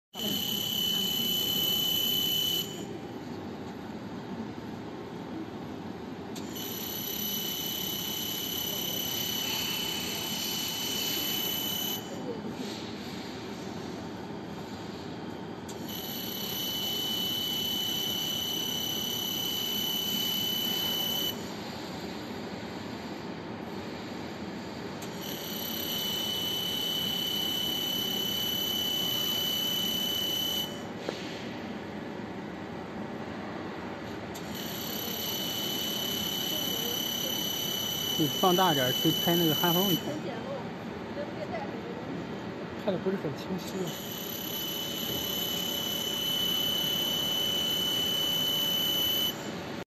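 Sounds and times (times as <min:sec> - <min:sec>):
laser welding head whine: 0:00.2 - 0:02.9, 0:06.4 - 0:12.2, 0:15.7 - 0:21.5, 0:25.0 - 0:31.3, 0:34.4 - 0:40.4, 0:43.8 - 0:49.8
machinery noise: 0:34.6 - 0:40.4.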